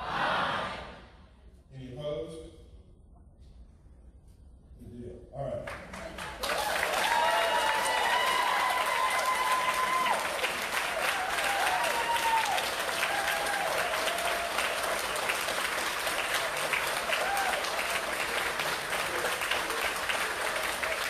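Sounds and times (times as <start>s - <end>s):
audience applauding: 5.7s - 21.0s
whooping and cheering: 6.4s - 15.4s, 16.2s - 18.4s.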